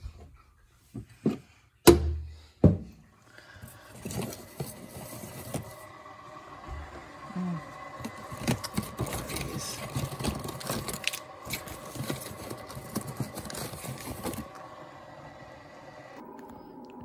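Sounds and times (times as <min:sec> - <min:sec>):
plastic coffee pods clattering: 0:08.0 - 0:14.6.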